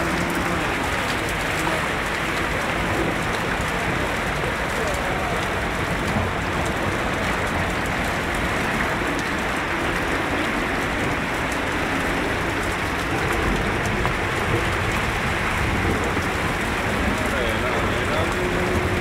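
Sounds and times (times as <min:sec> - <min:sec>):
heavy rain rushing: 0:00.0 - 0:19.0
raindrops ticking on surface: 0:00.0 - 0:19.0.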